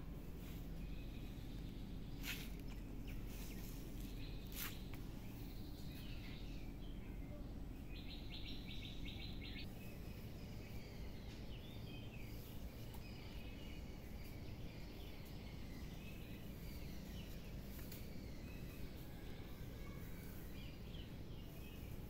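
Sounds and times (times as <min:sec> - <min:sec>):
low background noise: 0:00.0 - 0:22.0
small birds chirping: 0:00.0 - 0:22.0.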